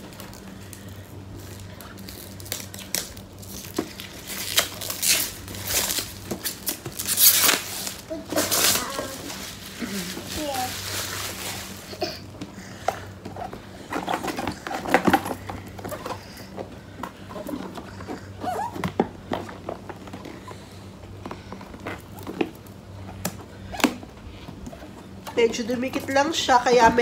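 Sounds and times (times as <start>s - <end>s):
plastic wrapping crinkling: 0.0s - 12.0s.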